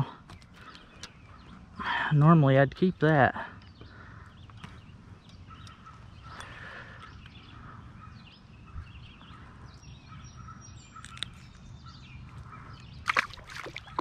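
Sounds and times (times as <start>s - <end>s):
birds chirping and calling: 0.0s - 14.0s
water splashes: 13.0s - 14.0s.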